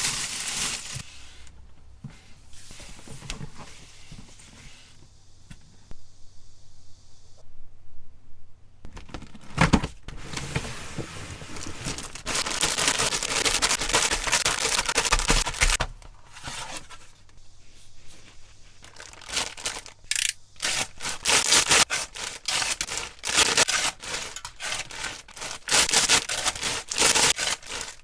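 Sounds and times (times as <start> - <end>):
plastic bags crinkling: 0.0 - 1.0, 8.9 - 9.7, 11.3 - 15.8, 18.8 - 28.0.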